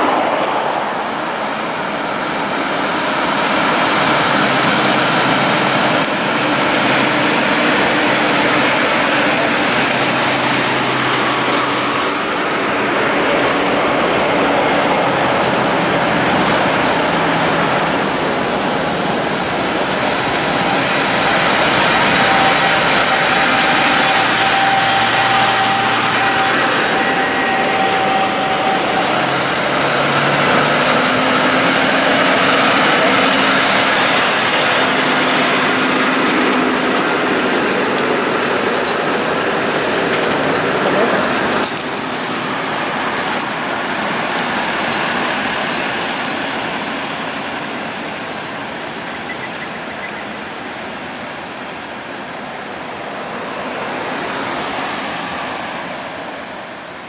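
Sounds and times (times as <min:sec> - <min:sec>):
diesel trucks passing: 0:00.0 - 0:57.0
heavy tyre noise on road: 0:00.0 - 0:57.0.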